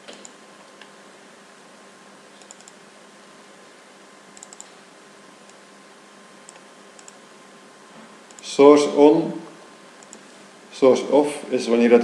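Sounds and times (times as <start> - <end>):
low hiss and hum: 0.0 - 12.0
computer mouse clicks: 2.4 - 2.8, 4.4 - 4.8, 6.5 - 7.2, 10.0 - 10.2.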